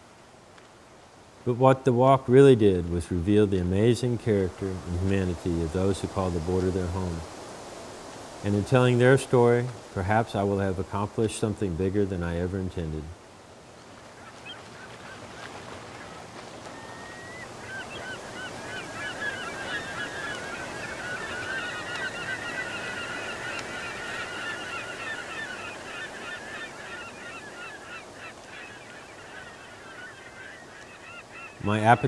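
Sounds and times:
surf washing: 0.0 - 32.0
gulls calling: 14.0 - 32.0.

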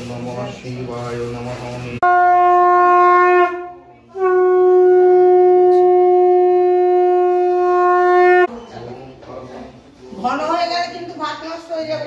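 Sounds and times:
conch shell blasts: 2.0 - 8.5.

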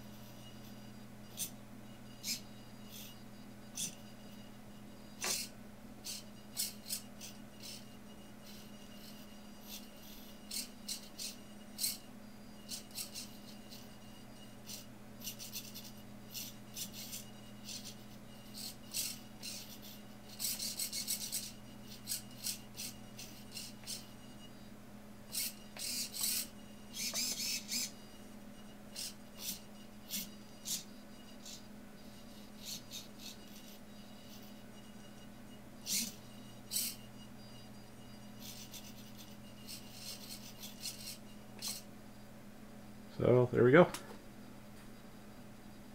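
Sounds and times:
steady low hum: 0.0 - 45.9
servos whirring: 5.1 - 24.5, 25.2 - 41.9.

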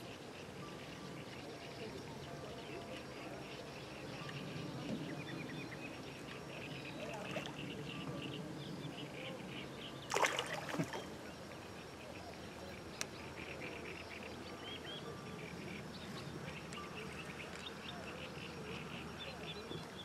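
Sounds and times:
water splashing: 10.1 - 11.2.

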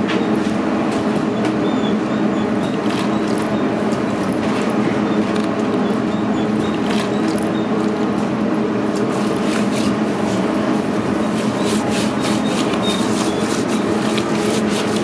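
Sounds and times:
machine hum: 0.0 - 15.0
hands rubbing wet meat: 9.0 - 15.0.

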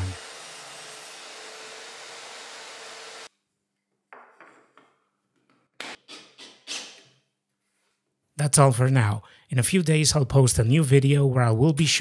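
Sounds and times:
table saw motor running: 0.0 - 3.3.

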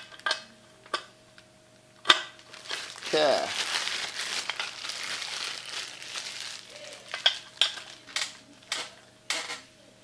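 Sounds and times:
crackling rustle of handling: 2.4 - 8.9.

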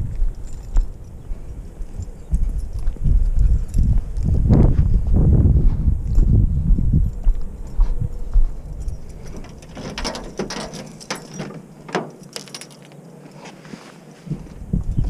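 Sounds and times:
footsteps on pavement: 0.0 - 9.6
keys jangling: 0.3 - 4.4, 8.6 - 13.6
car door lock clicks and rattles: 9.3 - 12.8.

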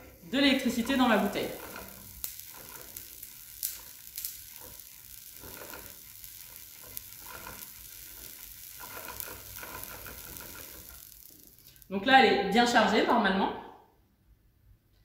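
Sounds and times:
small electric clicks: 0.0 - 11.9
faint steady hiss: 0.0 - 13.3.

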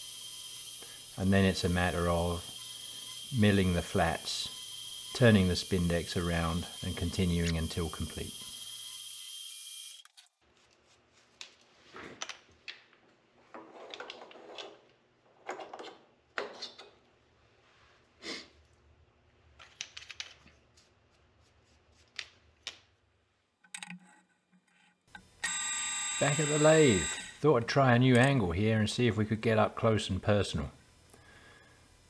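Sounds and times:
hands handling metal parts: 19.4 - 21.3.

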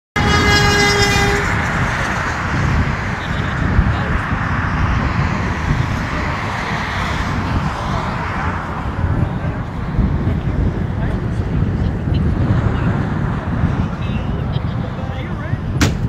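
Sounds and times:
car horn blast: 0.2 - 2.0
wind buffeting microphone: 0.2 - 16.0.

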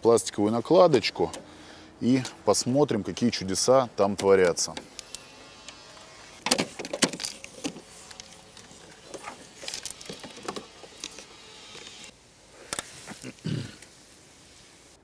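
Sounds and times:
plastic clips clicking: 4.1 - 5.8.

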